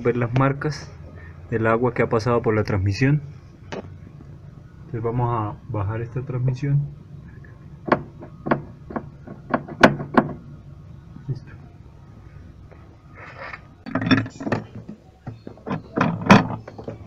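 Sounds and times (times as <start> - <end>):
hands handling machine parts: 12.7 - 17.0.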